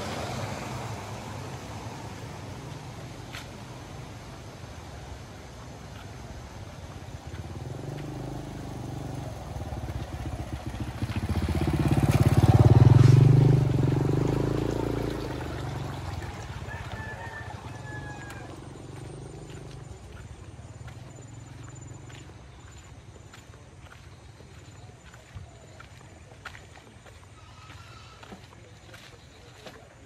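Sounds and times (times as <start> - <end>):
small motorcycle riding past: 7.0 - 24.0.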